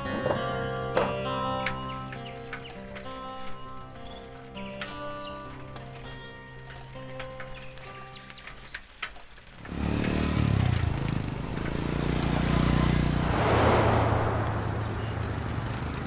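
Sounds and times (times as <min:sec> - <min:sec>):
vehicle engine running low: 0:01.9 - 0:16.0
vehicle passing rush: 0:10.2 - 0:16.0.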